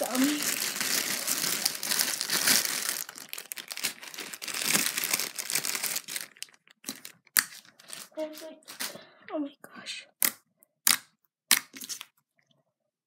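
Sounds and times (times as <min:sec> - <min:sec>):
dense crinkling crackle: 0:00.0 - 0:09.0.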